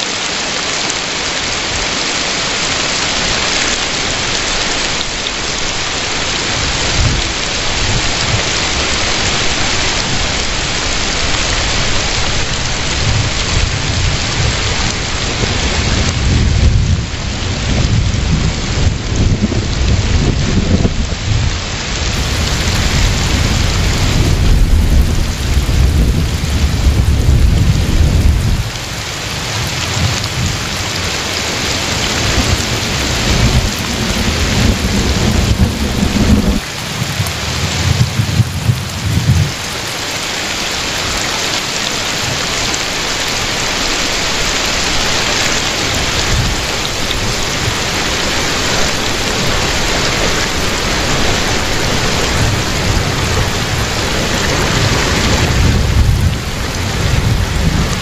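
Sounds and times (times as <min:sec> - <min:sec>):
heavy rain falling: 0:00.0 - 0:58.0
rolling thunder rumbles: 0:06.4 - 0:40.1, 0:44.4 - 0:58.0.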